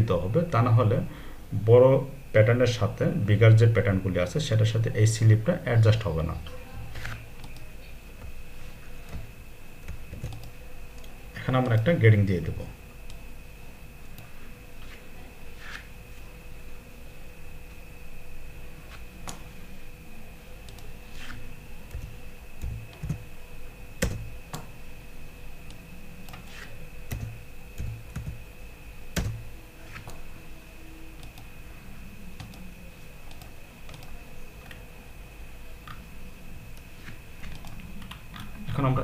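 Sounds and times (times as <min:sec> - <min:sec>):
faint high-pitched whine: 0:00.0 - 0:39.0
keyboard keystrokes: 0:09.0 - 0:11.9, 0:21.9 - 0:23.2, 0:24.0 - 0:24.7.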